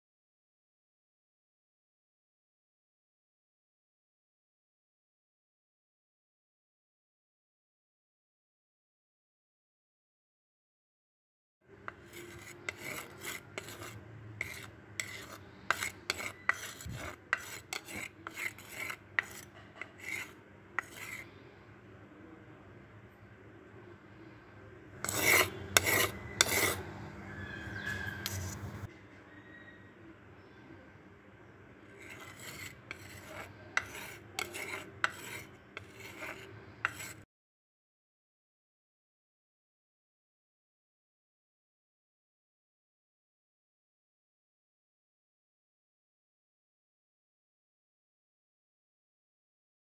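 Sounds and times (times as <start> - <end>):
wooden spatula scraping pot: 11.9 - 21.4, 25.0 - 28.9, 32.0 - 37.2.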